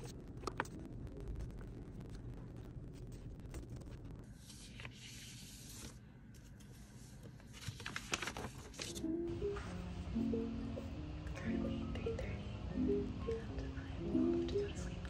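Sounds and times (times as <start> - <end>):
paper crinkles: 1.4 - 9.1
paper sheets rustling: 3.0 - 9.2.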